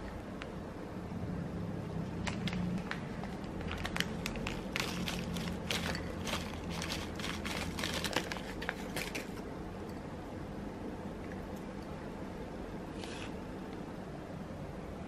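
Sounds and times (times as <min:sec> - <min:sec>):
plastic wrapper crinkling: 0:02.2 - 0:09.4.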